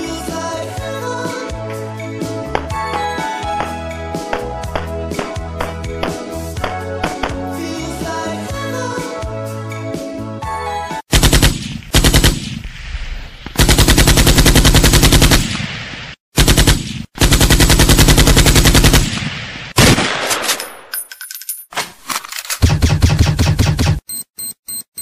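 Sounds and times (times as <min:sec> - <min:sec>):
machine-gun fire bursts: 0:11.1 - 0:12.6, 0:13.6 - 0:15.7, 0:16.4 - 0:20.5.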